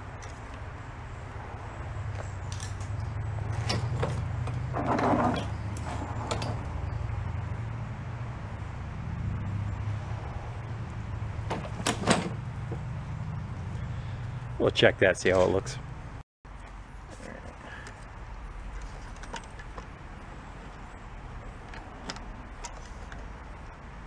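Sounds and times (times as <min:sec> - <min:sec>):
lawn mower handling clatter: 0:03.5 - 0:06.7, 0:11.4 - 0:12.4.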